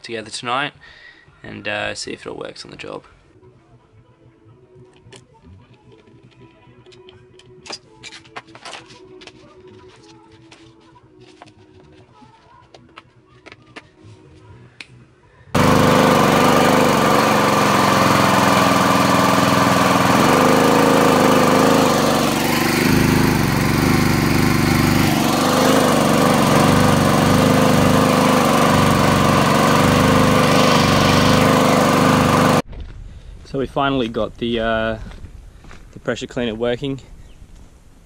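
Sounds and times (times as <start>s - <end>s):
small engine running loud and steady: 15.6s - 32.6s.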